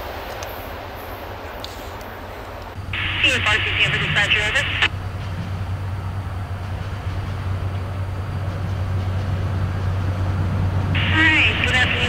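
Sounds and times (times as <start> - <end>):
even rumbling noise: 2.7 - 12.0.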